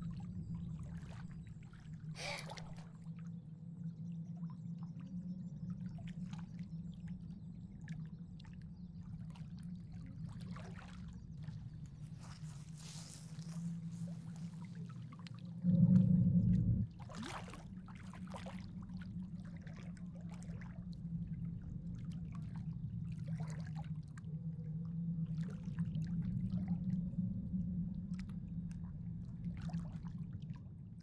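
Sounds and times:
steady low drone: 0.0s - 31.0s
loud low rumble: 15.6s - 17.4s.

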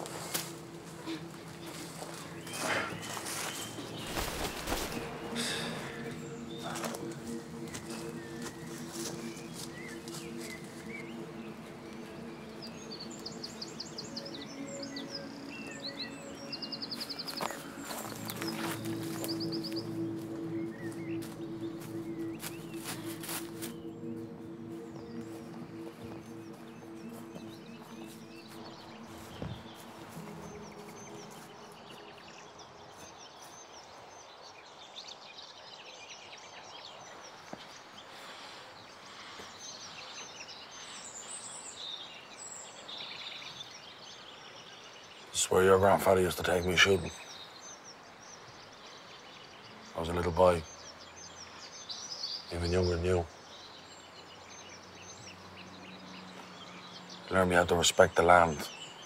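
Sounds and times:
held low music notes: 0.0s - 34.4s
small birds singing: 0.0s - 59.0s
steady outdoor hiss: 0.0s - 59.0s.

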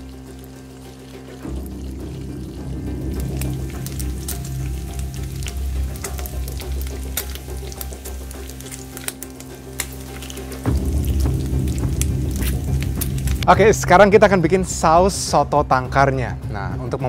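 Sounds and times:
hot oil sizzling and crackling: 0.0s - 15.3s.

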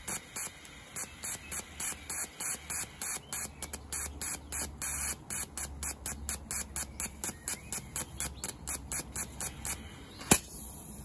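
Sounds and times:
fuel injector spray bursts clicking: 0.0s - 10.6s
single loud click: 10.2s - 10.5s.

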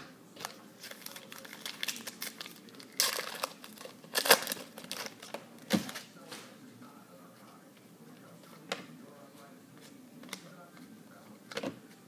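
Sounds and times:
foil wrapper crinkling: 0.4s - 6.1s.

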